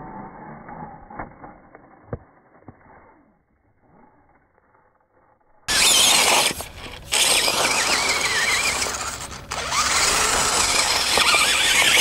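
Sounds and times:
electric motor whining: 5.7 - 12.0
tyres spinning in loose dirt: 5.7 - 12.0.

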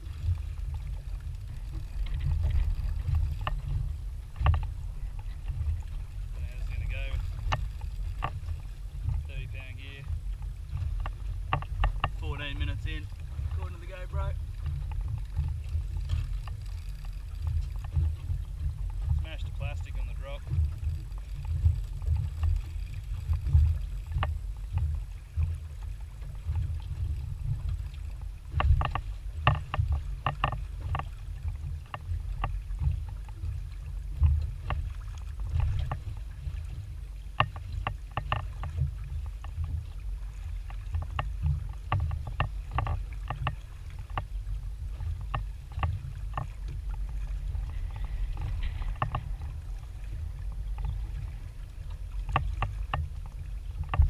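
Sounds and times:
boat clicks and knocks: 0.0 - 54.0
water and wind rumble: 0.0 - 54.0.

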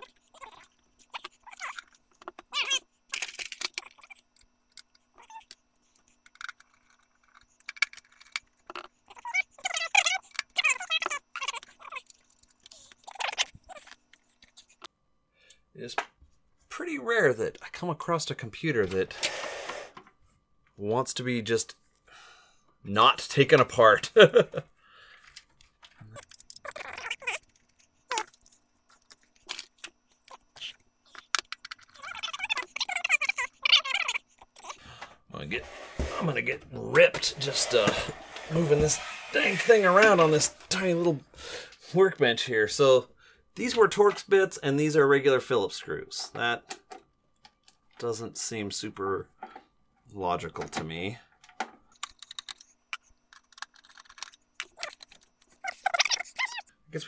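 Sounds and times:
metal parts clinking and rattling: 3.1 - 4.0, 6.3 - 8.9.

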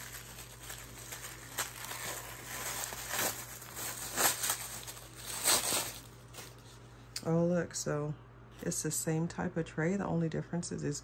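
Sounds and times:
tissue paper crinkling: 0.0 - 6.8.

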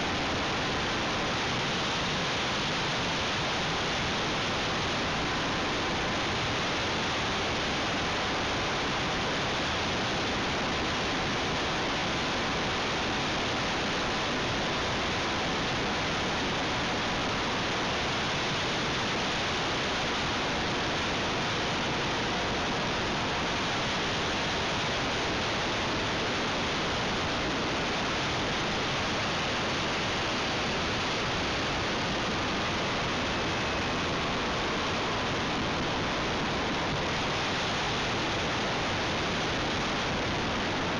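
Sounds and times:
faint steady whine: 0.0 - 40.9
airflow and propeller noise: 27.5 - 40.9.

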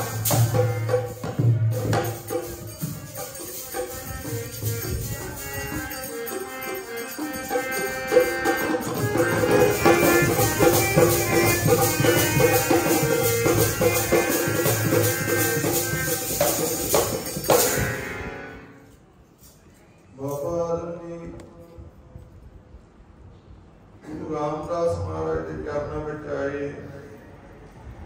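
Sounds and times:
hand percussion with jingles: 0.0 - 18.2
sustained held chords: 0.0 - 19.0.

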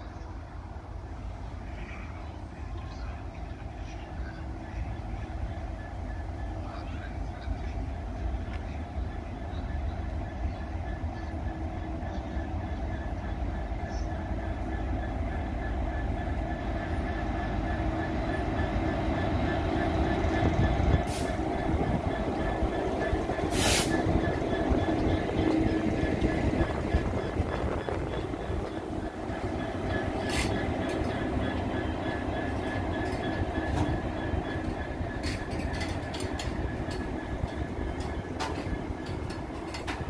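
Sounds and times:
diesel locomotive engine running: 0.0 - 40.0
train wheels rolling on rails: 0.0 - 40.0
high-pitched hissing bursts: 23.5 - 24.0.

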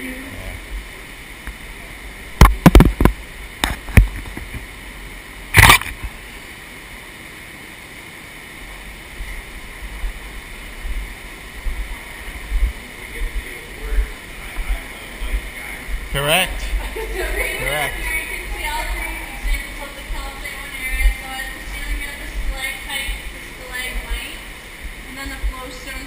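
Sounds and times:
steady background hiss: 0.0 - 26.0
brief loud burst of noise: 5.5 - 6.1.

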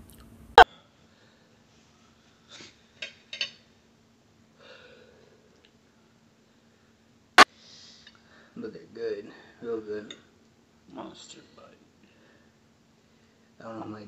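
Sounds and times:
soft breaths: 11.5 - 13.6.

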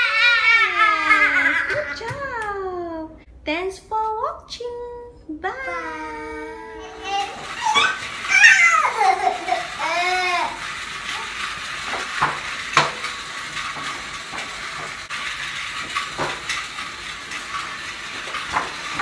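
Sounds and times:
toddler squealing: 0.0 - 2.0, 6.2 - 10.6.

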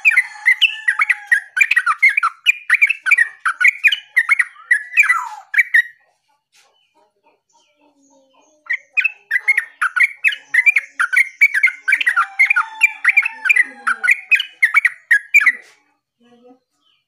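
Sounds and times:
bird chirping rapidly: 0.0 - 6.1, 7.5 - 15.7.

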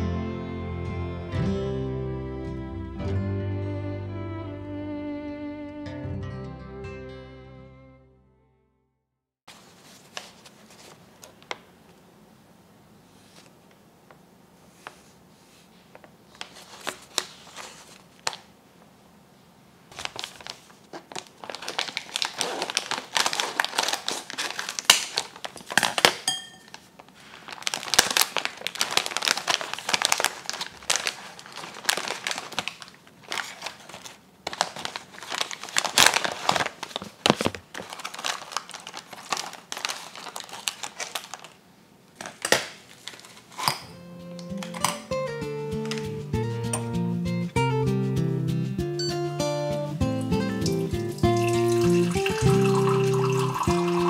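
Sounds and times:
paper packaging crinkling: 9.5 - 11.6, 15.9 - 18.5, 19.9 - 43.8, 50.4 - 54.0.

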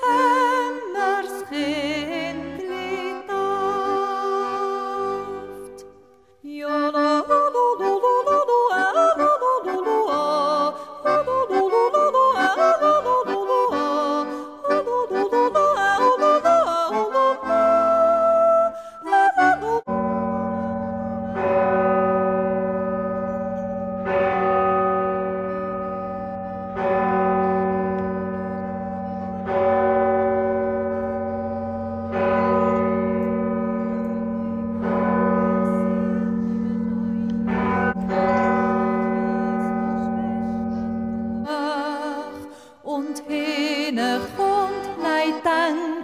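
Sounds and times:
church bell tolling: 19.9 - 42.5.

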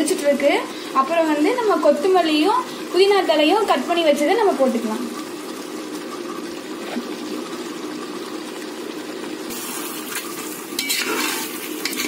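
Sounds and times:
sauce bubbling and sizzling in pot: 0.0 - 12.0
metal ladle scraping pot: 9.6 - 12.0.

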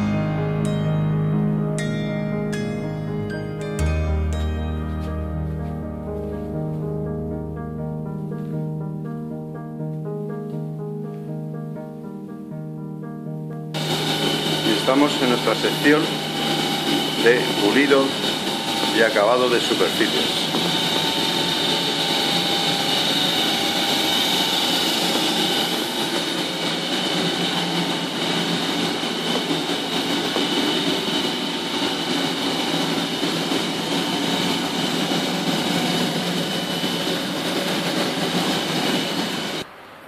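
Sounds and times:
polishing machinery whirring: 13.8 - 39.7.

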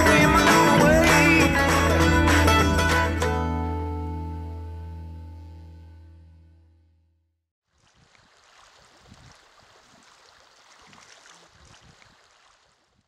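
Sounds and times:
plucked-string music: 0.0 - 6.6
water splashes and knocks: 7.7 - 13.0.

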